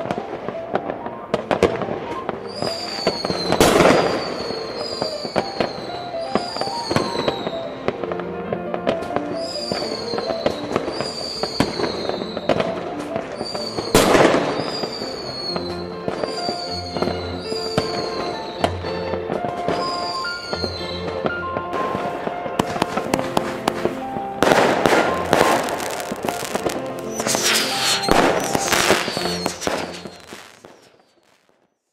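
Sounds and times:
music with held notes: 0.0 - 30.8
fireworks bangs and crackles: 0.0 - 31.7
short falling whistles: 2.5 - 7.6, 25.0 - 31.0.

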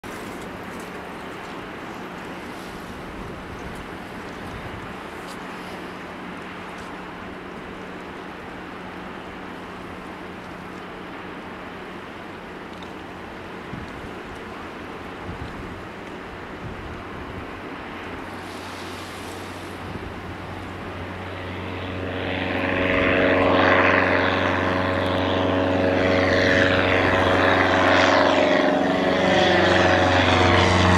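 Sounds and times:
distant propeller plane engine drone: 0.0 - 30.9
wind on microphone: 0.1 - 6.0, 13.6 - 30.9.

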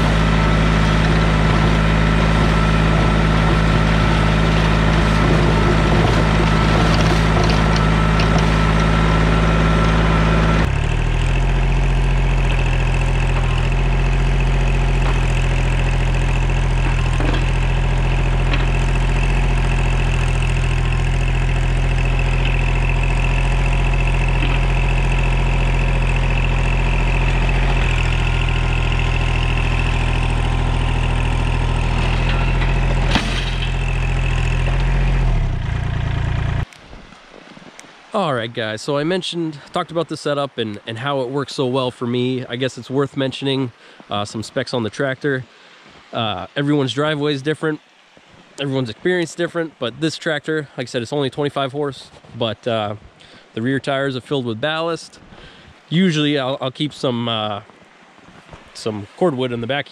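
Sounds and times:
tractor diesel engine running: 0.0 - 36.7.

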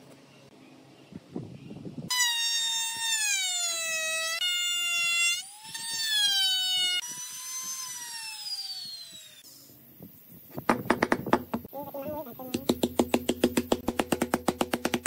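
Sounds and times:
trim router cutting wood: 2.1 - 9.4.

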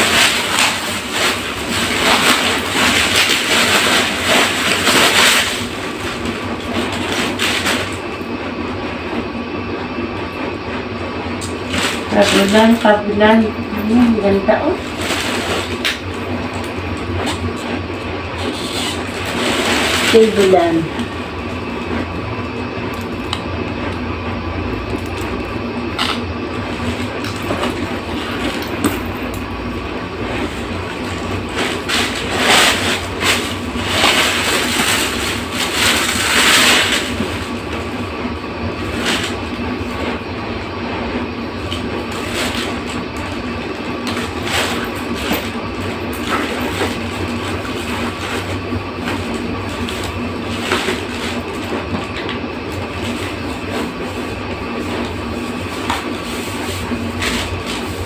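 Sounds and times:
plastic packaging crinkling: 0.0 - 8.1, 14.0 - 21.8, 30.2 - 38.1, 41.6 - 58.0
steady machine hum: 0.0 - 58.0.

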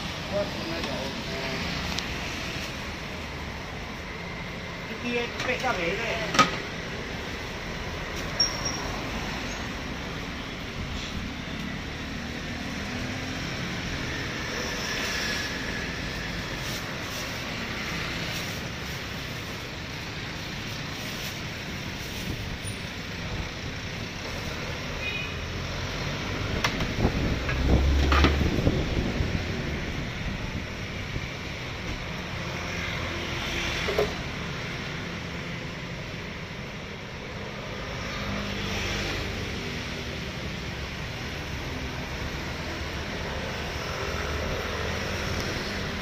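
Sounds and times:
street traffic rumble: 0.0 - 46.0.

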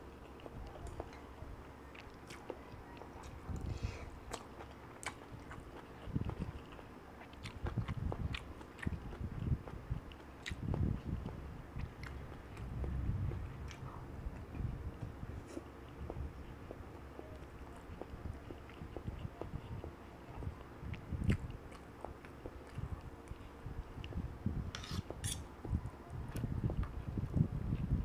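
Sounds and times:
close-up chewing: 0.1 - 24.2.

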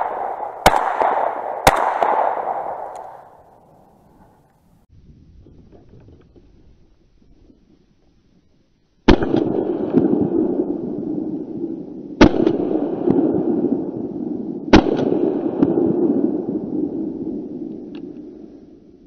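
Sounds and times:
shotgun shots with rolling echo: 0.0 - 4.3, 9.1 - 18.5.

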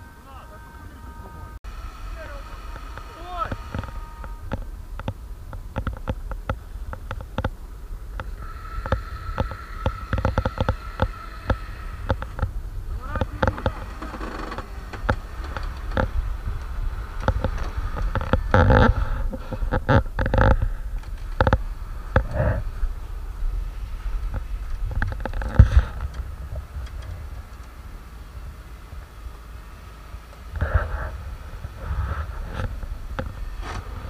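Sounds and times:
electric winch whining: 0.0 - 34.0
low rumble: 0.0 - 34.0
sharp cracks and knocks: 3.0 - 21.6.

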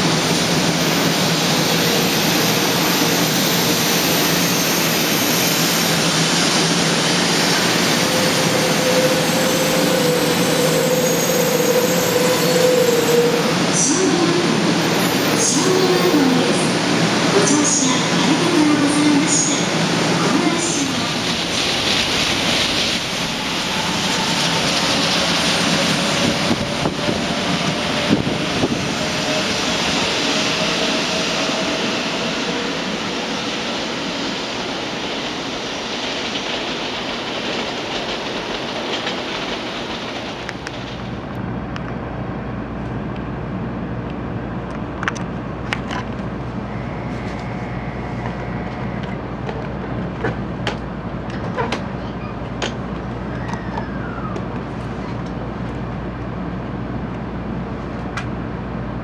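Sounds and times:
train pulling out rushing: 0.0 - 41.4
low hum inside train car: 0.0 - 59.0.

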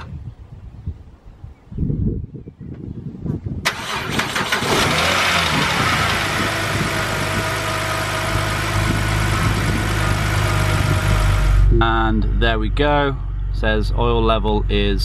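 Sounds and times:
car engine starting and idling: 3.6 - 15.0.

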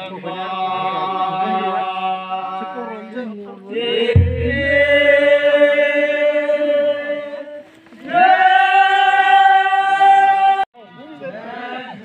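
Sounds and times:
group singing long notes: 3.7 - 10.7
deep thump: 4.2 - 5.4.

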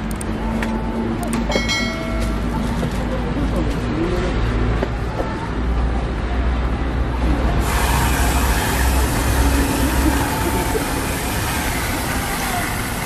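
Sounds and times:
street traffic rumble: 0.0 - 13.0
whipped cream dispenser hissing: 7.6 - 13.0.

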